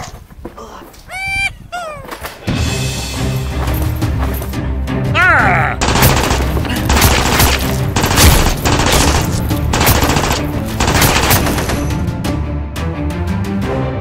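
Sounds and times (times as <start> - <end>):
background music: 2.3 - 14.0
machine-gun fire bursts: 5.8 - 11.9.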